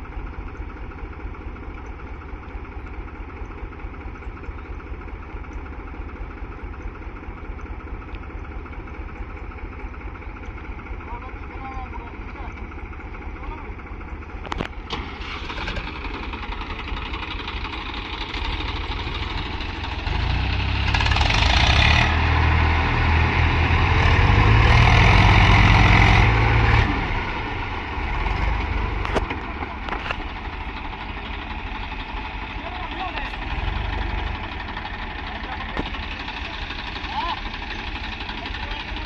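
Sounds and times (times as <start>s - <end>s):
diesel tractor engine revving: 0.0s - 39.0s.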